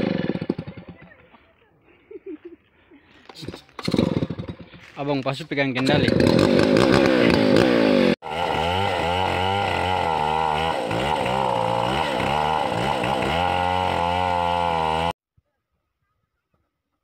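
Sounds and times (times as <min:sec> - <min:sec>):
chainsaw engine revving: 0:00.0 - 0:01.1, 0:03.4 - 0:04.7, 0:05.8 - 0:15.2.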